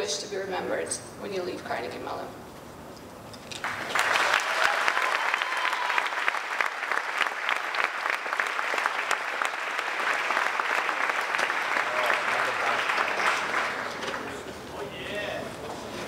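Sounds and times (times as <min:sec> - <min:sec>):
audience applauding: 0:03.6 - 0:14.5.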